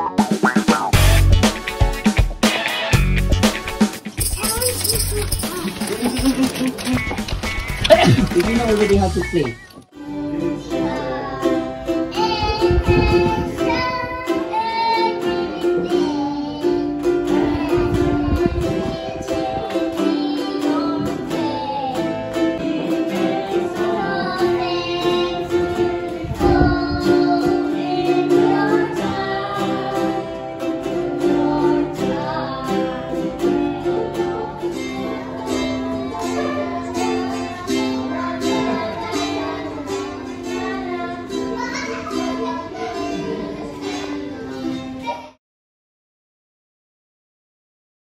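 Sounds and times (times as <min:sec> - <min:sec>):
acoustic guitar: 0:00.0 - 0:45.4
strummed ukulele: 0:00.0 - 0:45.4
child singing into microphone: 0:09.4 - 0:45.4.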